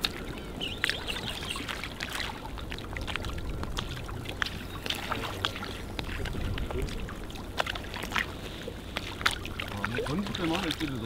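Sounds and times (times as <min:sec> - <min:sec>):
sea water splashing around boats: 0:00.0 - 0:11.0
steady low rumble: 0:00.0 - 0:11.0.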